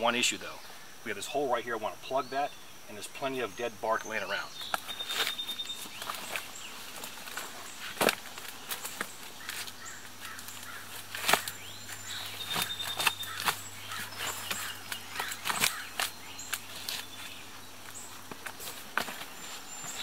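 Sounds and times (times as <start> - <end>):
faint bird calls: 4.1 - 18.2
dry sticks crackling and snapping: 4.6 - 20.0.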